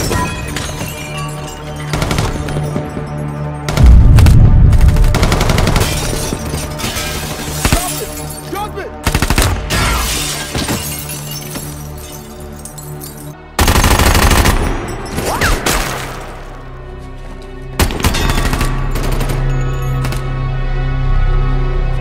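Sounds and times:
dramatic music score: 0.0s - 22.0s
rapid automatic gunfire: 4.7s - 5.8s, 13.6s - 14.6s.

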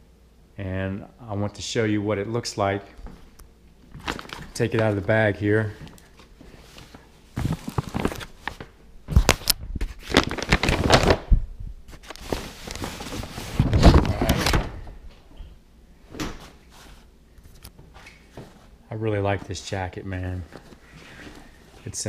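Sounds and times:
paper bag rustling: 3.9s - 14.9s, 16.4s - 22.0s.

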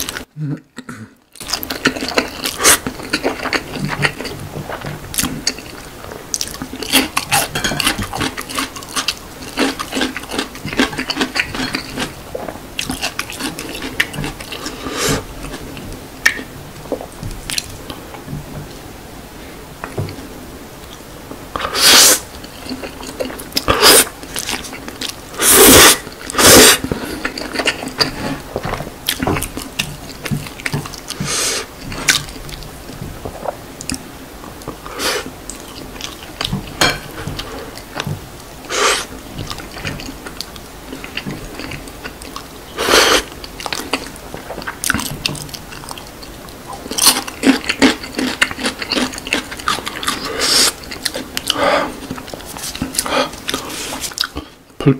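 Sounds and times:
wet chewing: 1.4s - 18.8s, 21.6s - 38.2s, 38.8s - 54.5s.

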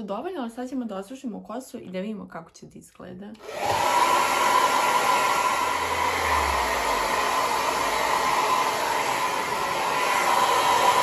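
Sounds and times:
hair dryer running: 3.4s - 11.0s.

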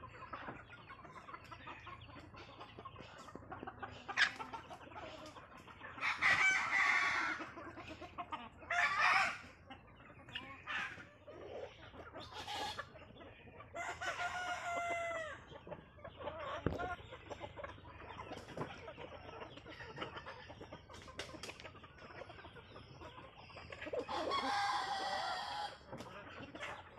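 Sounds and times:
chickens clucking: 0.0s - 26.9s
roosters crowing: 6.0s - 7.6s, 8.7s - 9.6s, 13.7s - 15.5s, 24.0s - 25.9s.

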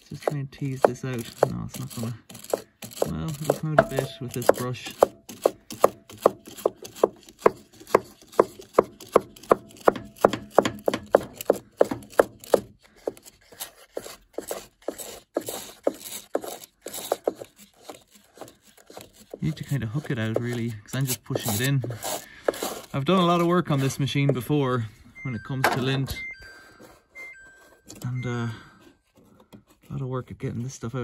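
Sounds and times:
stiff brush scraping metal fins: 0.0s - 6.5s, 15.3s - 24.6s.

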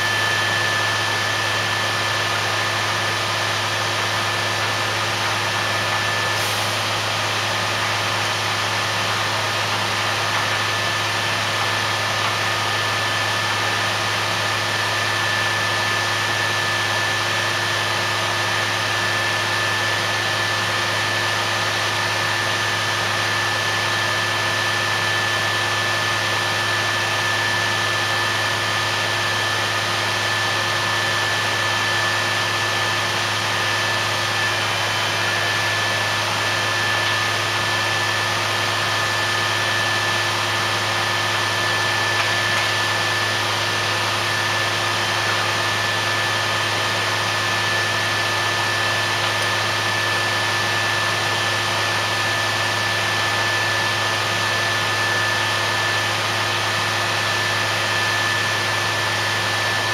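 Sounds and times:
drilling rig drone and whine: 0.0s - 59.9s.

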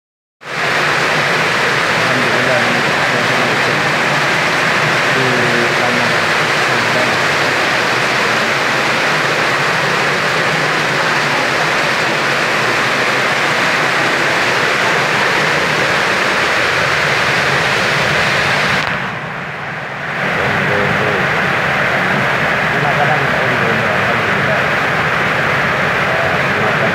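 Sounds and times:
heavy rain on roofs and pavement: 0.4s - 26.9s.

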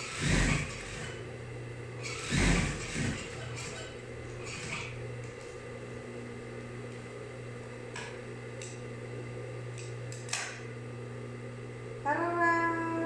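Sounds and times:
sewing machine motor humming: 0.0s - 1.4s, 2.0s - 5.7s.

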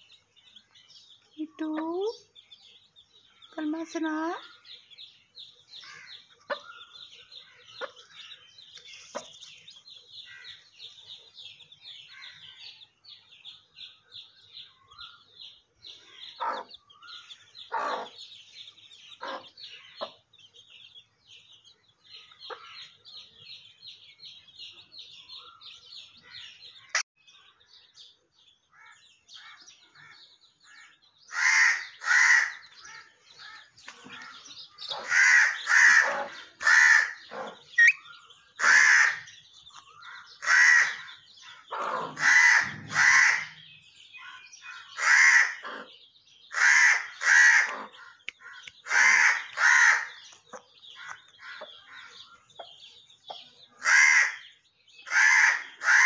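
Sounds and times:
high-pitched bird chirping: 0.0s - 28.0s, 29.3s - 56.0s
parakeet squawking: 34.3s - 39.3s.

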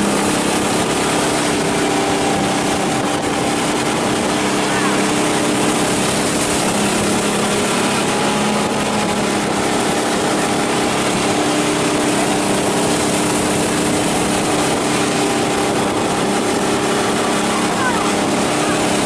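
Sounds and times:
boat engine running: 0.0s - 19.0s.

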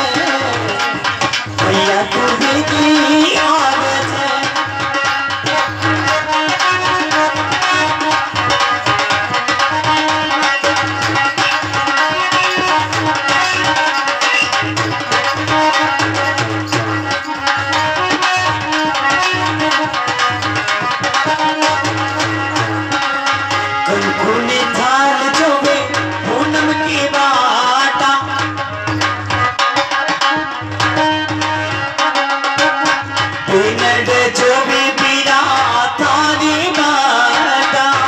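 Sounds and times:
person singing: 0.0s - 8.0s, 23.8s - 28.6s, 33.4s - 38.0s
hand drum rhythm: 0.0s - 38.0s.

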